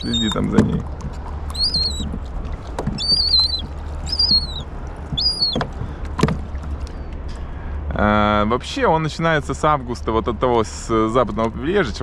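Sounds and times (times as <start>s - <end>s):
seagull squealing calls: 0.0s - 0.5s, 1.5s - 2.2s, 2.9s - 5.8s
steady low rumble: 0.0s - 12.0s
sharp knocks: 5.1s - 6.5s.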